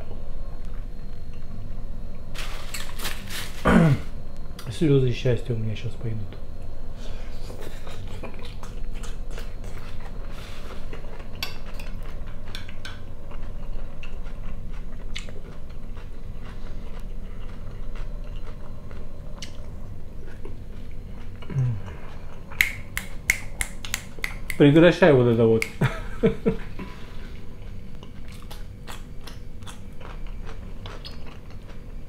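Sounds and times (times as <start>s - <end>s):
man chewing: 7.1s - 24.6s, 26.5s - 32.0s.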